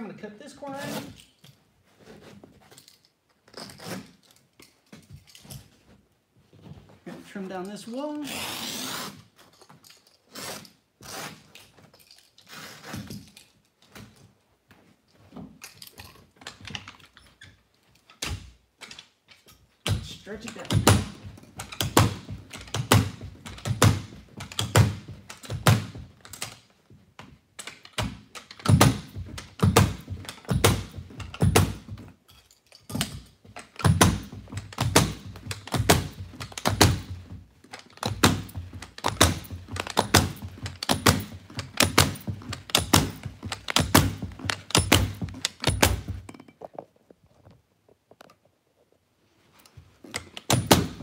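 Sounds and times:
carpet knee kicker thumps: 0:19.9 - 0:26.2, 0:28.0 - 0:32.1, 0:33.0 - 0:46.3, 0:50.4 - 0:51.0.

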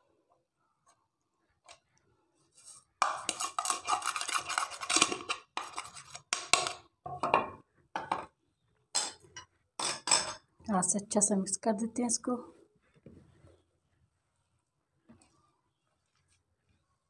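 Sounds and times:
plate scraping against plate: 0:03.0 - 0:06.3.

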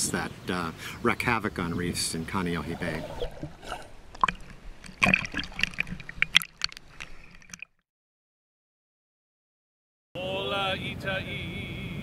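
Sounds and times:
water sloshing and splashing: 0:02.3 - 0:07.8.

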